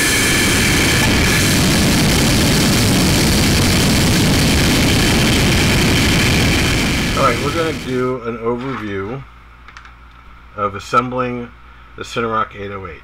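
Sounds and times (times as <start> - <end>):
rocket motor rushing noise: 0.0 - 8.2.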